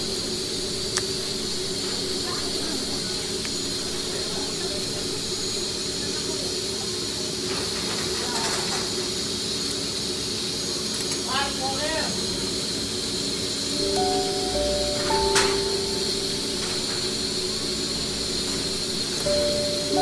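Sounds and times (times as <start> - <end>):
shop machinery running: 0.0 - 8.0, 14.2 - 20.0.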